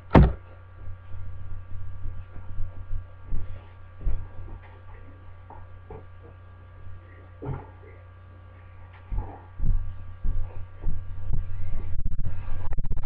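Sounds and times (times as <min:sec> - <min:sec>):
low electrical hum: 0:00.0 - 0:13.0
knocks and thumps: 0:00.1 - 0:00.5, 0:02.3 - 0:06.5.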